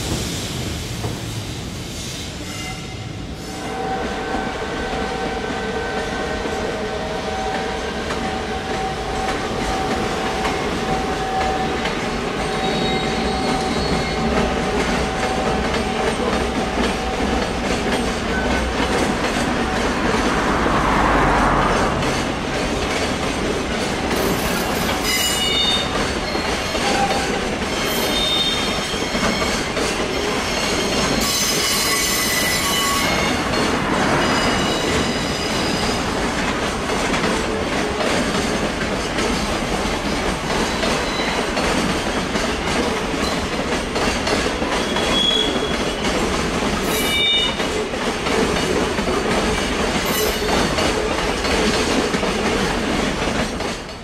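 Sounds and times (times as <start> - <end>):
train wheels squealing: 2.0 - 6.4, 7.1 - 18.9, 24.1 - 36.2, 40.6 - 47.7, 50.0 - 50.8
freight train wagons rolling: 3.6 - 54.0
wheels clicking over rail joints: 34.9 - 54.0.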